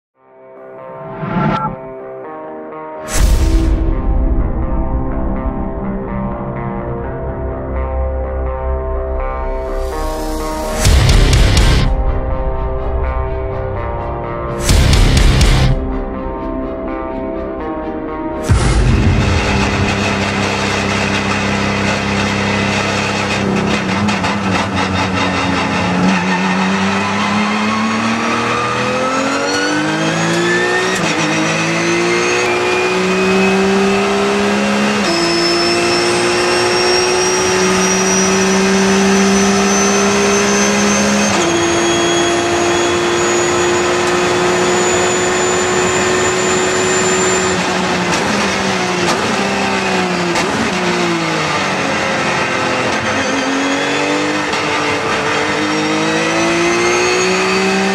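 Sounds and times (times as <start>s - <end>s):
race car engine accelerating: 18.4s - 57.9s.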